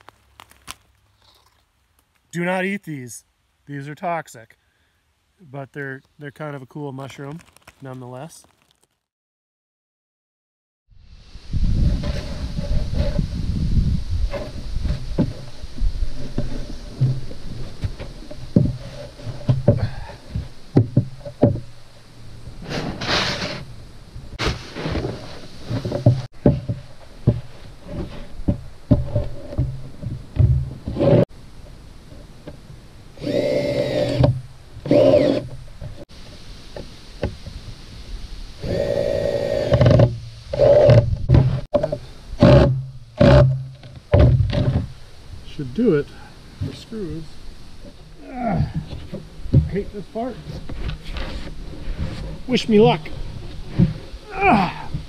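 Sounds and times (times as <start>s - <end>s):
cordless drill whirring: 33.2s - 34.3s, 34.9s - 35.4s.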